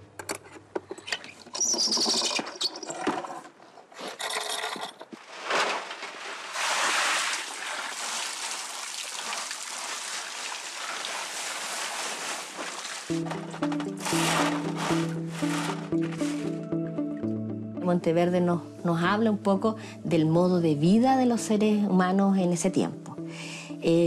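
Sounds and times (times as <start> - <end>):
scraping and knocking: 1.8 - 7.0, 12.1 - 16.6
hose water spraying on sediment: 6.2 - 13.1.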